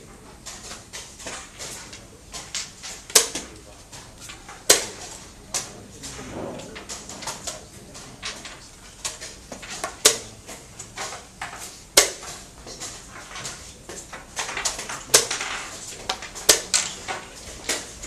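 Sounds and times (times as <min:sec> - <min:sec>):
chess pieces clicking on wooden board: 0:06.9 - 0:18.0.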